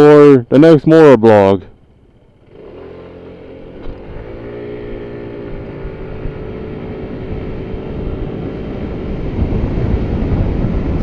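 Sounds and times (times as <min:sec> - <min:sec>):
scooter engine pulling away: 0:01.8 - 0:11.0
wind noise on microphone: 0:03.8 - 0:11.0.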